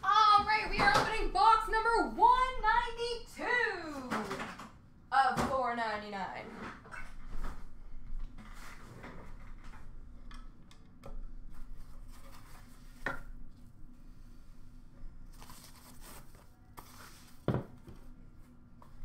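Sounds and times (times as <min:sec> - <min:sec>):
paper wrapping rustling: 0:15.3 - 0:17.4.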